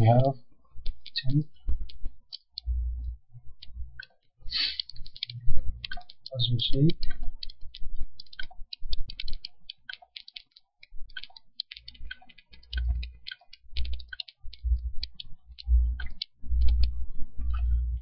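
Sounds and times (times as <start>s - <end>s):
computer mouse clicking: 0.8s - 2.7s, 3.6s - 17.9s
dull low thumps: 1.6s - 4.0s, 5.4s - 7.3s, 14.6s - 18.0s.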